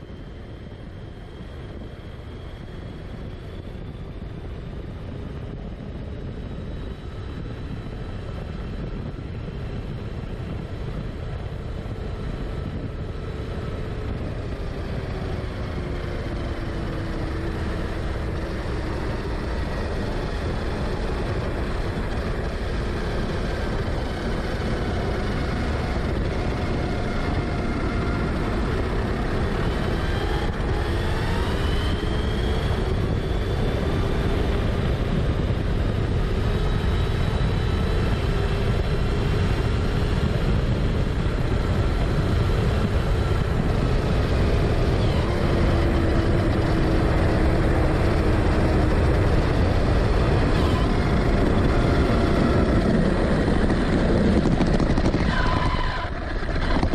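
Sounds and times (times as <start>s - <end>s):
wind noise: 0.0s - 56.9s
electric motor whine: 12.6s - 56.9s
tyre noise on asphalt: 42.0s - 56.9s.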